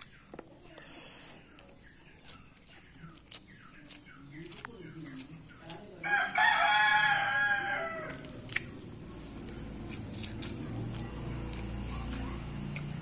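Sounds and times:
rooster crowing: 6.0 - 8.3.

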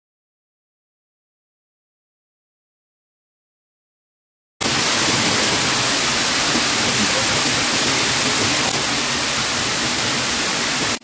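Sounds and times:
waterfall rushing: 4.6 - 11.0.

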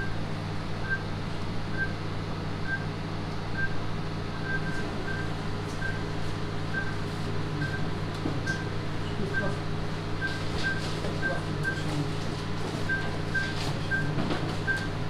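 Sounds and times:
steady low hum: 0.0 - 15.0
patient monitor beeping: 0.8 - 1.1, 1.7 - 2.0, 2.6 - 2.9, 3.5 - 12.2, 12.8 - 15.0.

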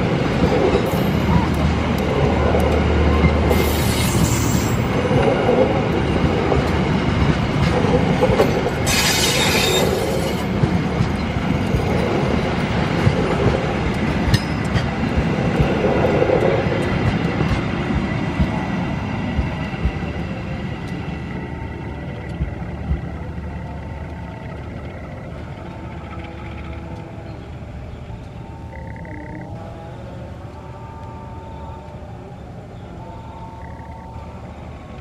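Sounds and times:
train wheels rumbling on rails: 0.0 - 32.2
high-pitched wheel squeals: 8.8 - 10.4.

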